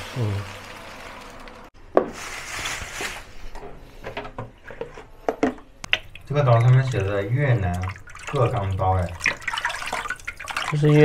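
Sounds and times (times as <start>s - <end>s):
stirring: 4.7s - 11.0s.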